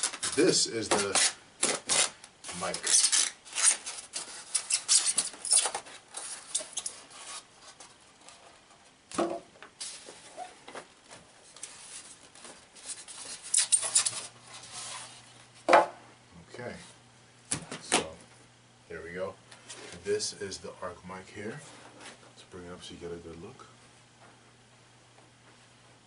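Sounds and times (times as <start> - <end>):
styrofoam scraping and squeaking: 0.0 - 8.3, 9.8 - 10.6, 12.8 - 15.3.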